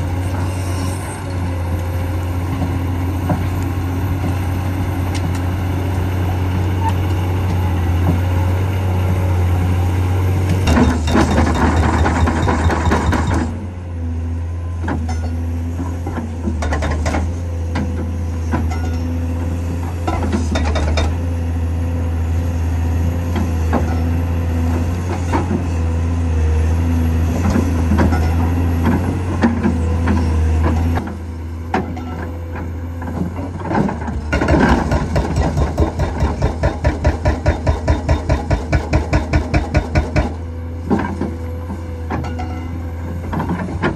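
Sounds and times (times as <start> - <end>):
hydraulic hammer pounding ground: 0.0 - 13.9, 14.7 - 21.8, 22.4 - 43.9
excavator diesel engine running: 0.0 - 43.9
knocks and clanks: 10.6 - 13.6.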